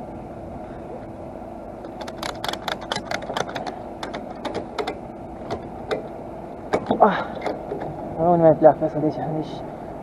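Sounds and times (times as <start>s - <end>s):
steady engine hum: 0.0s - 10.0s
mechanical clicks and rattles: 1.8s - 6.1s.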